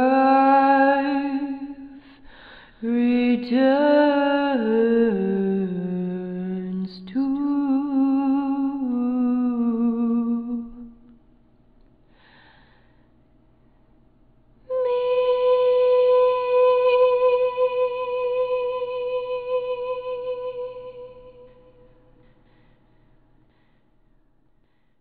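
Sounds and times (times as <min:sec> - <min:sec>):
woman humming a melody: 0:14.7 - 0:21.9.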